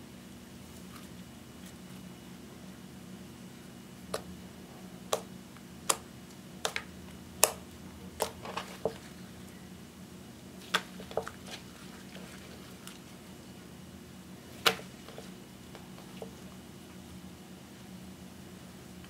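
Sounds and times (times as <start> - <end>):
hands kneading slime: 5.1 - 9.4, 10.5 - 13.7.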